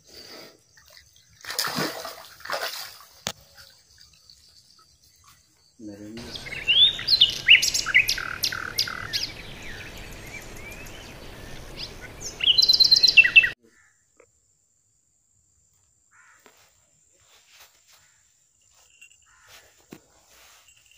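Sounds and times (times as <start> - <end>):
birds chirping and whistling: 4.3 - 13.6.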